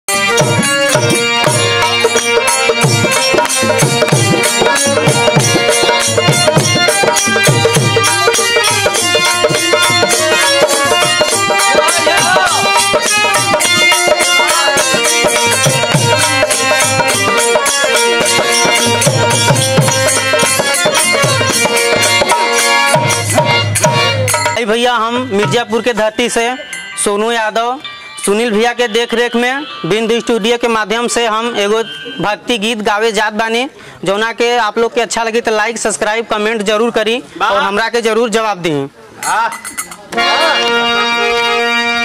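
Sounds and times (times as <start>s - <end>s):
hand drum rhythm: 0.1s - 26.1s
harmonium chords: 0.1s - 33.1s, 40.0s - 42.0s.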